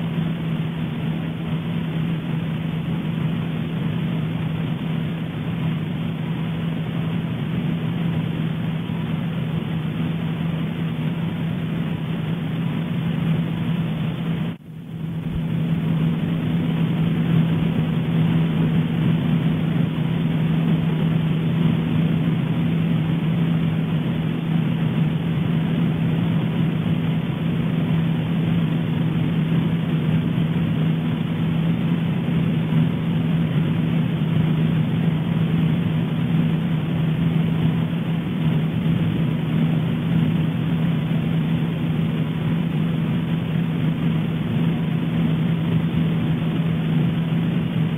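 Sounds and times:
constant low hum: 0:00.0 - 0:47.9.

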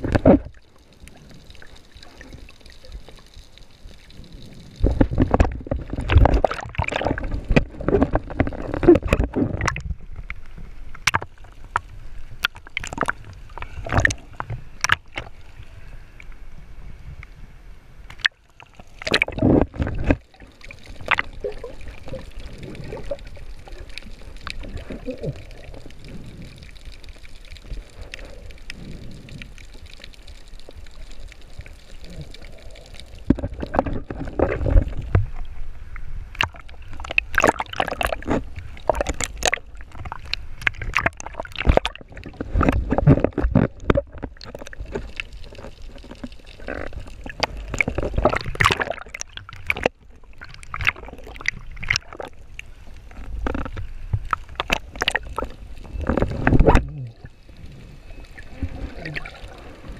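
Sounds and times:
muffled underwater rumble: 0:18.8 - 0:59.9
seawater splashing against camera: 0:36.3 - 0:59.9.

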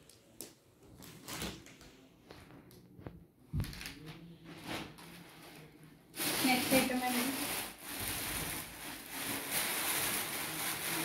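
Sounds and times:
plastic bags rustling: 0:03.6 - 0:11.0.

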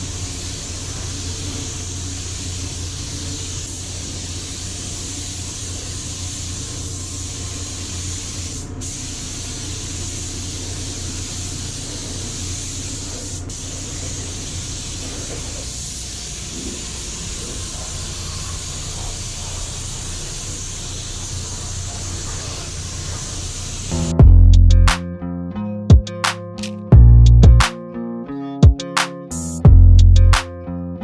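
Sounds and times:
paint spray gun hissing: 0:00.0 - 0:24.1.

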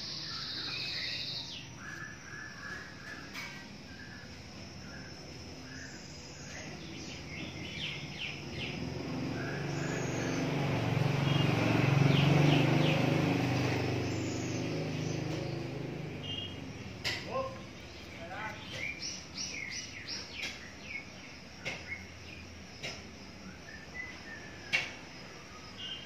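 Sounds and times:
small birds chirping: 0:00.0 - 0:26.0
vehicle engine passing by: 0:06.9 - 0:18.1.

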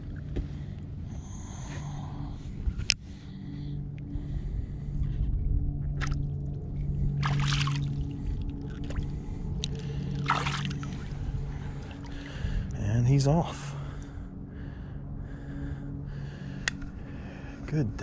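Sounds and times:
low steady hum: 0:00.0 - 0:18.0
shallow water sloshing: 0:07.1 - 0:12.7
fish splashing: 0:07.2 - 0:08.0, 0:10.2 - 0:11.1.

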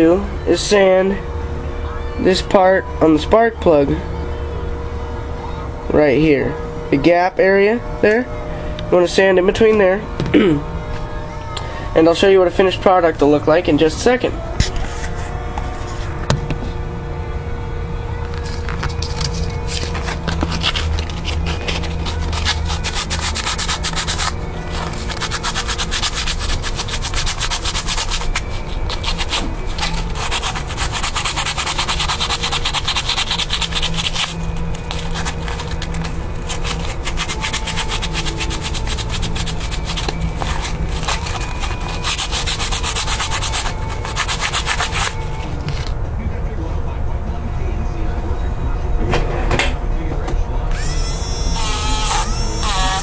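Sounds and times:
sandpaper rubbing on metal: 0:19.1 - 0:45.2.

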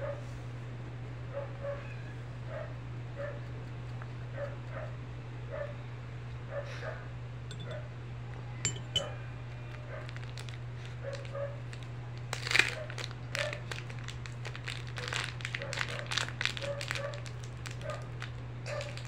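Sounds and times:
electric fan hum: 0:00.0 - 0:19.0
sharp clinks: 0:07.5 - 0:07.8, 0:08.7 - 0:09.2
plastic packet crinkling: 0:09.7 - 0:19.0.

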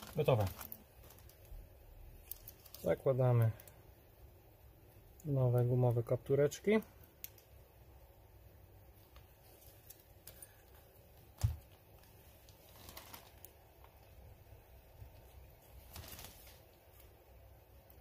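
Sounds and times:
faint clicks and rustles: 0:00.0 - 0:03.8, 0:08.9 - 0:18.0.

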